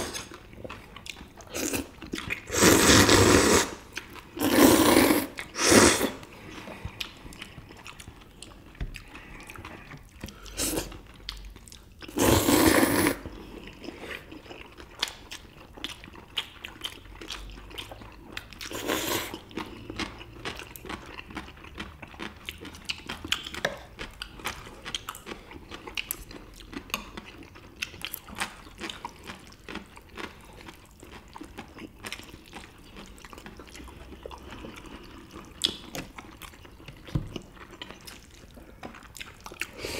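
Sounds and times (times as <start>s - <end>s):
chewing food: 0.0s - 39.9s
slurping noodles: 1.5s - 6.6s, 12.1s - 14.4s, 18.6s - 19.5s.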